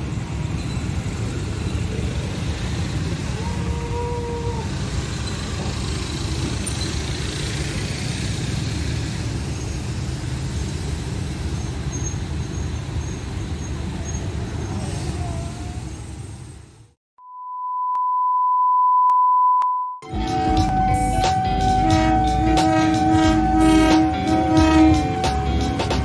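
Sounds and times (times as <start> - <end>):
car engines rumbling: 0.0 - 17.0, 20.0 - 26.0
steady test tone: 17.2 - 26.0.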